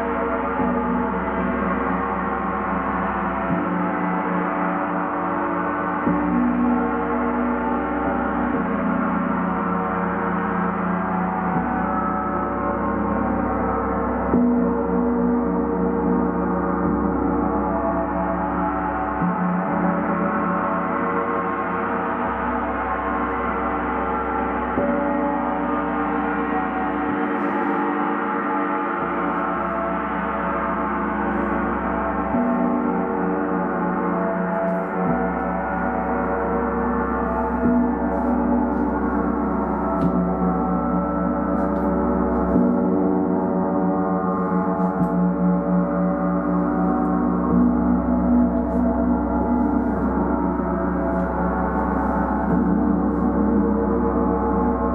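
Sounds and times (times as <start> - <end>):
gong ringing: 21.6 - 54.9.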